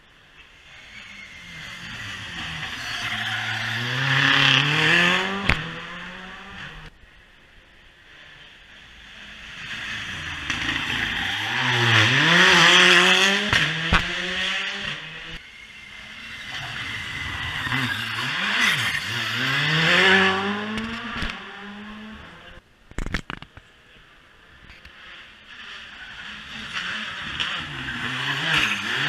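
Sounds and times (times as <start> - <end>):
tyres squealing on tarmac: 0.7 - 4.2
rally car engine revving: 0.7 - 6.9, 8.4 - 22.6, 24.9 - 29.0.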